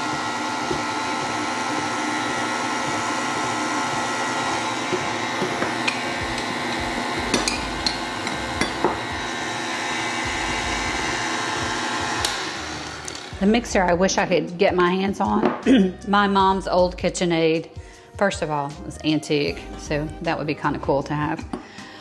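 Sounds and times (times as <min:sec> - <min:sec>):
stand mixer motor humming: 0:00.0 - 0:13.6.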